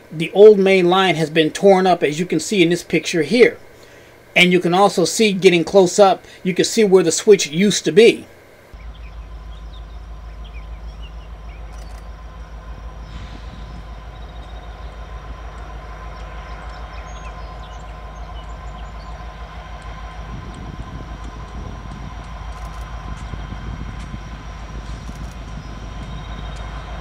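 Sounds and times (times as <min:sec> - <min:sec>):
locomotive engines rumbling: 0:00.0 - 0:27.0.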